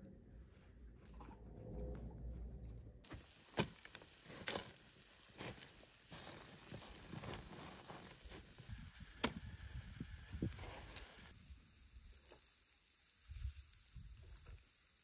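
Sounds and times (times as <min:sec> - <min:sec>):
charcoal crunching and clicking: 0:03.0 - 0:11.3
faint steady hiss: 0:03.0 - 0:15.0.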